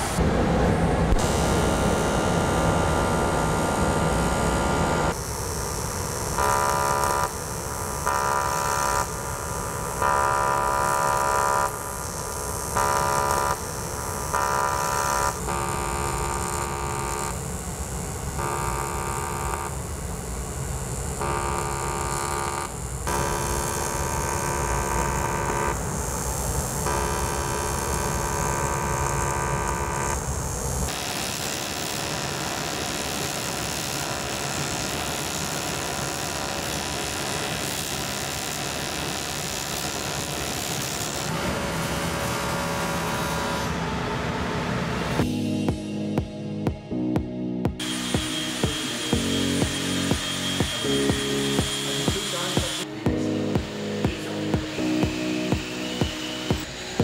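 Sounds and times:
welding arc buzzing: 0.0s - 45.5s, 47.7s - 57.0s.

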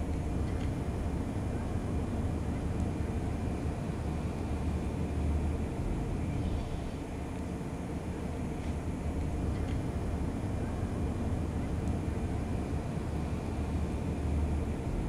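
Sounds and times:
outdoor low rumble: 0.0s - 7.3s.

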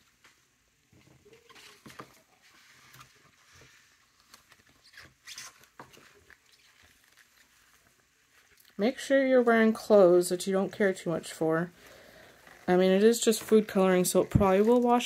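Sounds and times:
wet fabric squishing: 3.9s - 10.2s
glove squeak: 4.6s - 7.5s.

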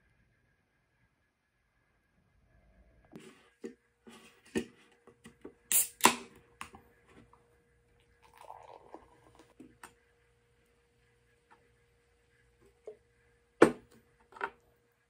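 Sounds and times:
can tab cracking open: 5.7s - 6.7s
beer pouring into glass: 8.1s - 9.6s.

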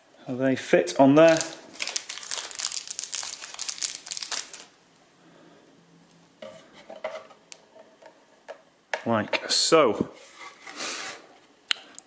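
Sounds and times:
plastic bag crinkling: 1.1s - 4.8s.

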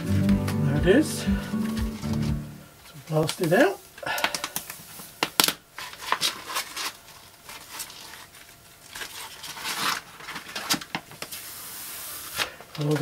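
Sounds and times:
rubber mask peeling with crackles: 4.3s - 13.0s.

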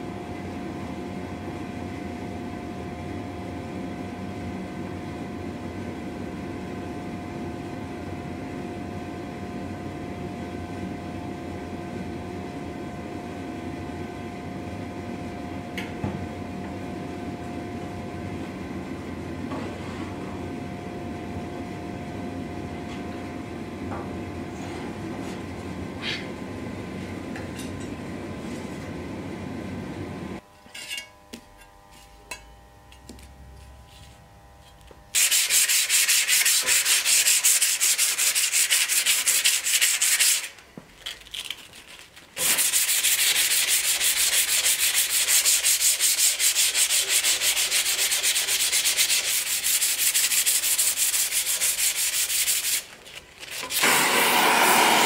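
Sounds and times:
gas forge burner rushing: 53.6s - 55.0s
gas torch hissing: 53.6s - 55.0s.

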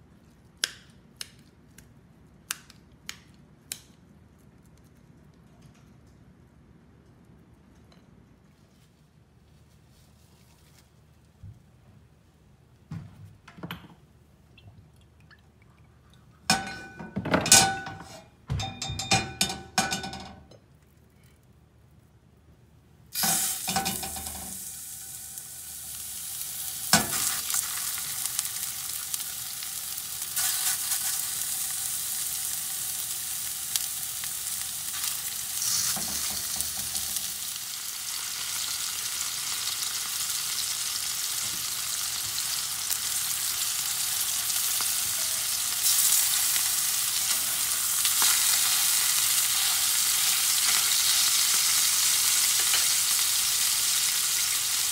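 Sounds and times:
meat sizzling in a pan: 23.2s - 54.9s.

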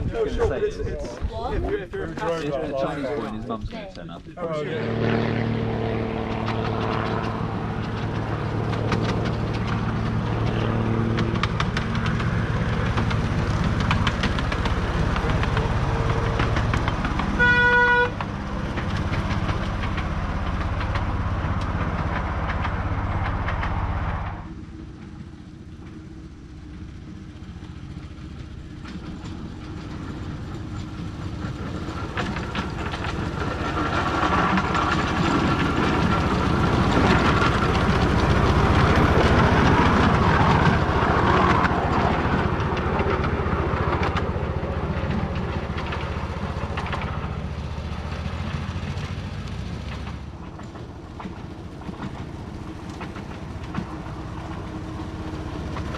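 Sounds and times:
locomotive engine running: 0.0s - 55.9s
train horn toot: 17.3s - 18.2s.

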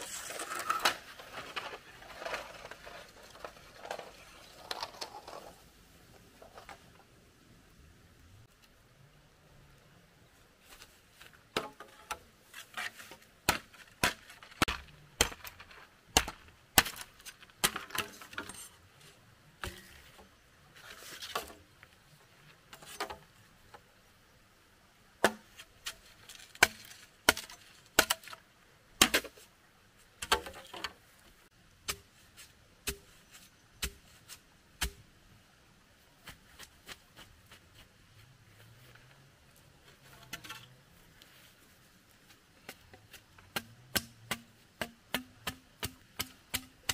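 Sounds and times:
wood chopping strikes: 13.4s - 18.1s, 25.2s - 25.5s, 26.6s - 28.4s, 29.0s - 29.4s, 31.8s - 32.2s, 32.8s - 33.2s, 33.8s - 34.1s, 34.8s - 35.0s, 43.4s - 46.9s.

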